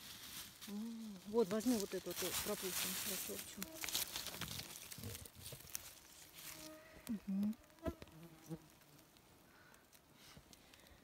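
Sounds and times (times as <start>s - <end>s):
flying insects buzzing: 3.1s - 4.4s, 5.9s - 9.1s
faint clicks: 8.7s - 11.0s.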